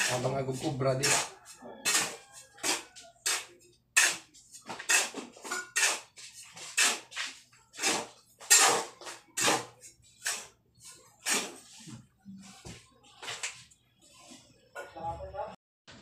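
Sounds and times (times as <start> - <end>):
hand tool scraping concrete: 0.0 - 12.0.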